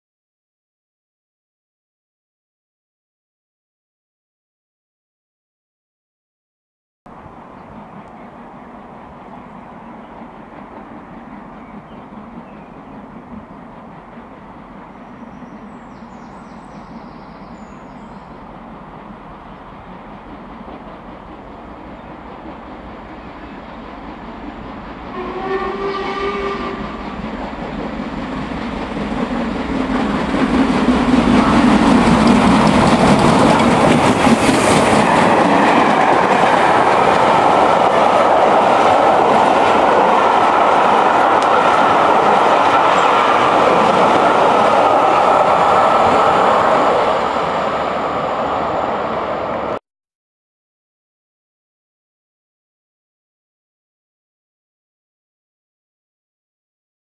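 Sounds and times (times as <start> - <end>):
steam train passing: 7.1 - 49.8
steam whistle: 25.1 - 27.1.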